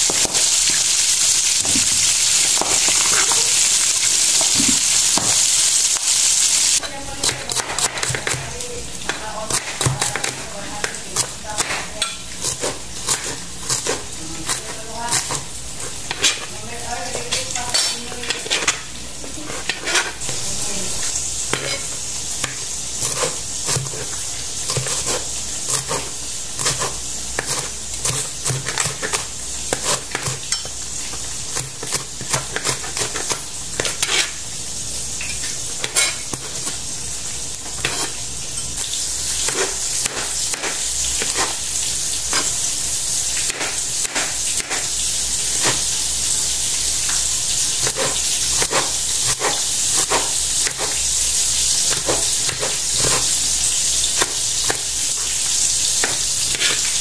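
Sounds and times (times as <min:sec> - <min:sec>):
frying sizzle: 0:00.0 - 0:57.0
knife chopping on cutting board: 0:22.4 - 0:30.6, 0:31.5 - 0:34.3, 0:39.4 - 0:41.6, 0:43.4 - 0:44.9, 0:47.8 - 0:51.0, 0:51.8 - 0:53.4.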